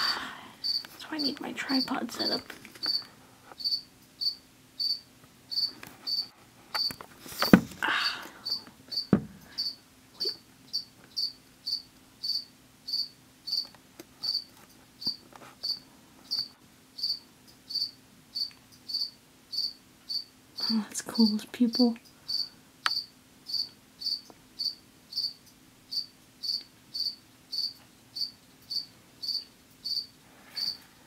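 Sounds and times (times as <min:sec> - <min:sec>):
cricket chirping: 0:00.6 - 0:00.9, 0:02.8 - 0:07.0, 0:08.4 - 0:20.7, 0:22.3 - 0:30.8
rustling knock: 0:07.3 - 0:07.8, 0:09.1 - 0:09.4.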